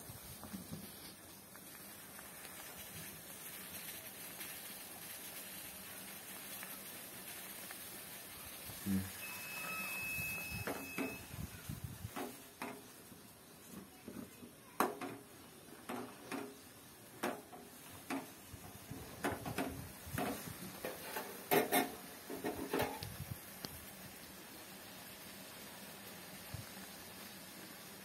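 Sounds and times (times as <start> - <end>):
metal spoon scraping a pot: 20.8 - 23.0.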